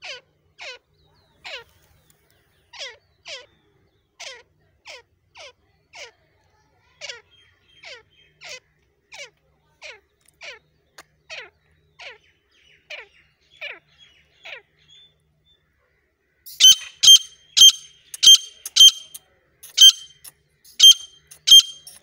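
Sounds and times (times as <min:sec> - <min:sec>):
bird sharp ringing high notes: 0:16.5 - 0:19.2, 0:19.8 - 0:22.0
bird repeated falling notes: 0:16.5 - 0:22.0.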